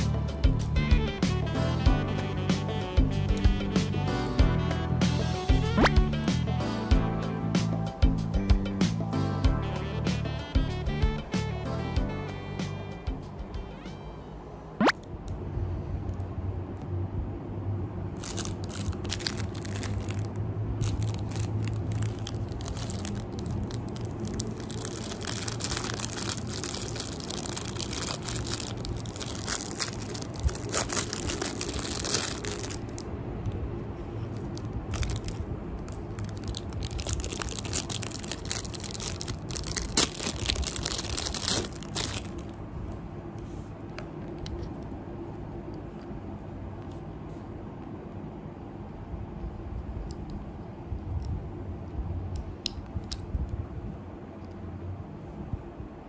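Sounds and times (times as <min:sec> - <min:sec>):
low steady hum: 0:09.3 - 0:56.0
plastic packaging crinkling: 0:18.2 - 0:33.1, 0:34.3 - 0:42.6.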